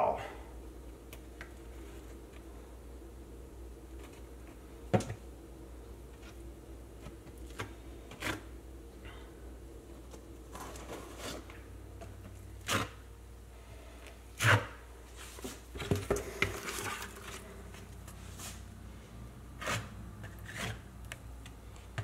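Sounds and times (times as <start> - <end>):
trowel scraping mastic on wall: 14.4 - 14.8, 19.6 - 20.9.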